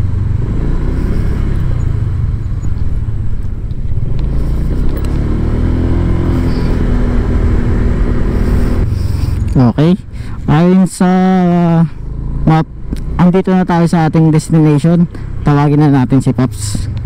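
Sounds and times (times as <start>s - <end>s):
scooter engine running: 0.0s - 10.6s
road and wind noise: 0.0s - 17.0s.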